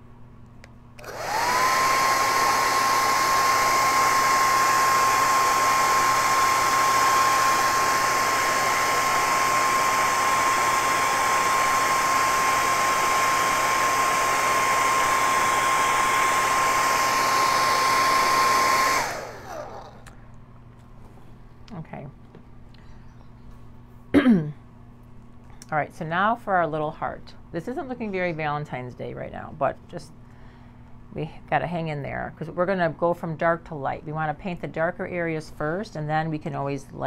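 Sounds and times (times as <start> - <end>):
hair dryer running: 1.0 - 20.2.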